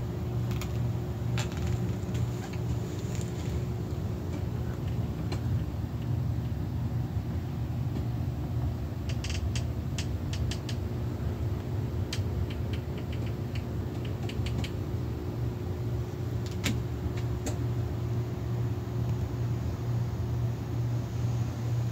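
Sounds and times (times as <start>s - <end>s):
low machine hum: 0.0s - 21.9s
light clicks and taps: 12.1s - 14.8s.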